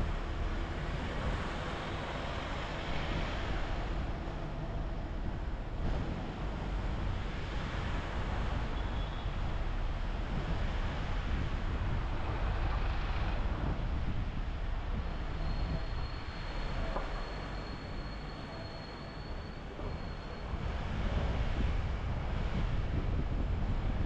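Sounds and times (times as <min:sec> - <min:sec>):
car road and engine rumble: 0:00.0 - 0:24.0.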